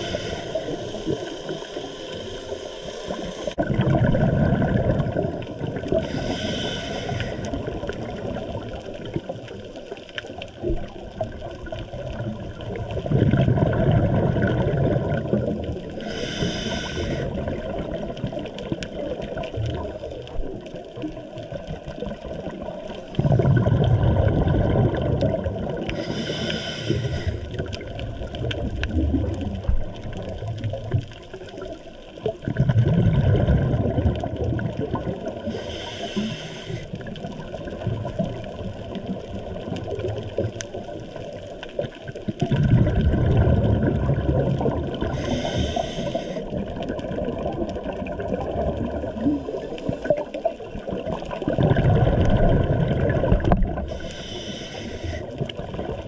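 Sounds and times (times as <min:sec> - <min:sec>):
regulator hissing inhalation: 0:00.0 - 0:03.6, 0:06.0 - 0:07.6, 0:16.0 - 0:17.4, 0:25.9 - 0:27.6, 0:35.5 - 0:37.0, 0:45.1 - 0:46.5, 0:53.9 - 0:55.4
gurgle of exhaled bubbles: 0:00.0 - 0:56.0.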